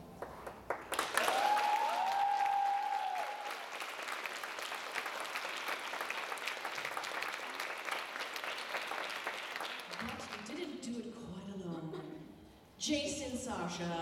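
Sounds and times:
audience clapping: 0:00.0 - 0:10.8
crowd cheering woo: 0:01.0 - 0:04.2.

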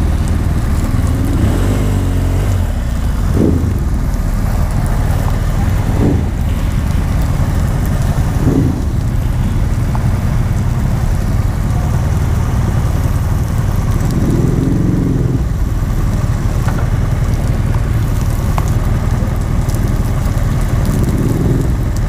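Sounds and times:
motorcycle engine idling: 0:00.0 - 0:22.0.

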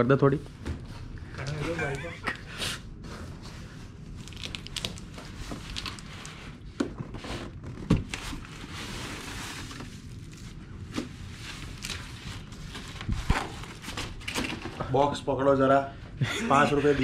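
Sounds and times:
plastic and cardboard rustling: 0:03.0 - 0:14.8.

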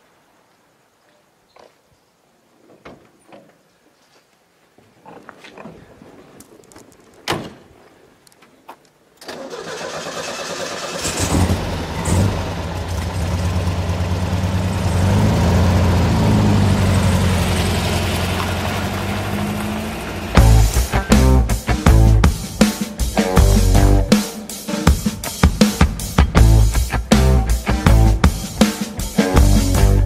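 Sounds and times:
thump: 0:07.3 - 0:07.6
car engine cranking and running: 0:09.2 - 0:21.1.

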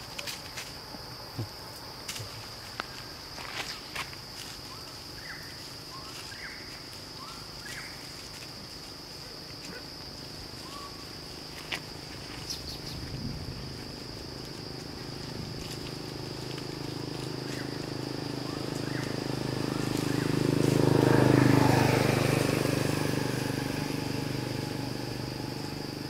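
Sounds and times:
high-pitched insect drone: 0:00.0 - 0:26.0
monkeys rustling dry leaves: 0:03.6 - 0:21.5.

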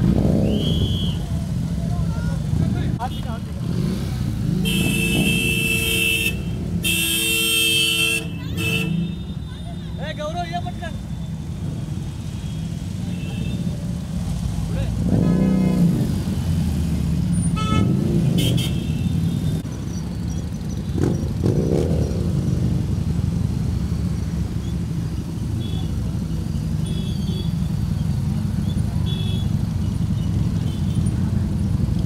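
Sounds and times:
motorcycle engines rumbling: 0:00.0 - 0:32.0
horns tooting: 0:00.1 - 0:01.5, 0:02.9 - 0:14.0, 0:17.4 - 0:19.6, 0:25.4 - 0:31.9.

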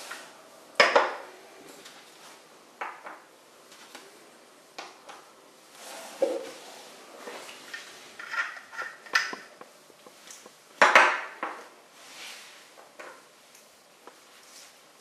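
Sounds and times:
small clicks and scrapes: 0:07.6 - 0:10.5.

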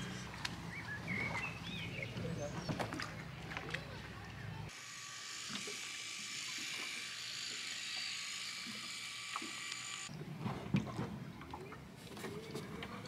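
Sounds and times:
cordless drill motor whine: 0:04.7 - 0:10.1.

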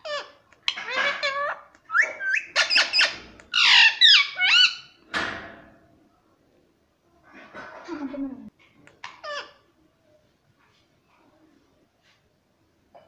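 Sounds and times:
parakeet squawking and chattering: 0:00.0 - 0:05.0, 0:09.0 - 0:09.6.

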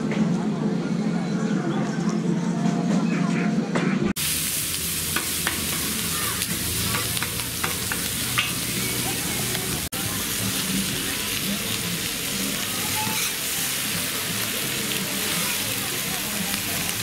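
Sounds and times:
food sizzling: 0:04.2 - 0:17.0.

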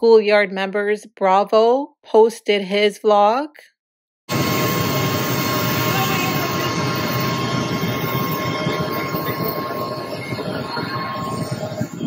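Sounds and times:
faint high whine: 0:04.3 - 0:12.0
jet engine rushing: 0:04.3 - 0:12.0.

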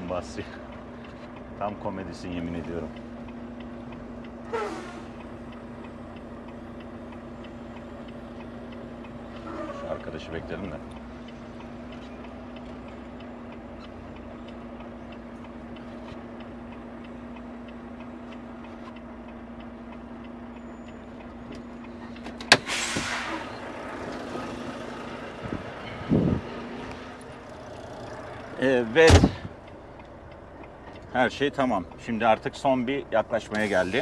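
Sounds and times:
faint regular ticking: 0:00.0 - 0:22.4, 0:23.6 - 0:33.6
diesel engine idling: 0:00.0 - 0:34.0
air hiss: 0:22.5 - 0:23.5, 0:33.6 - 0:34.0.

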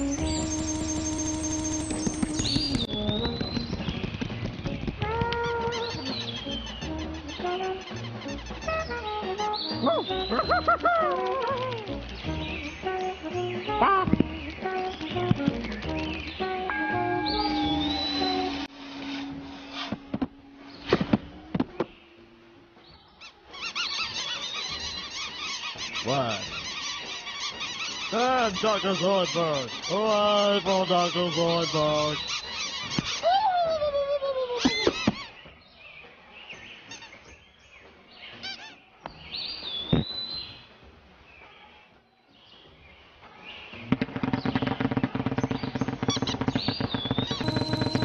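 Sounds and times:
cartoon taps and squeaks: 0:00.1 - 0:08.8, 0:43.9 - 0:48.0
cartoon birds chirping: 0:05.5 - 0:18.7, 0:23.2 - 0:35.4, 0:44.2 - 0:48.0.

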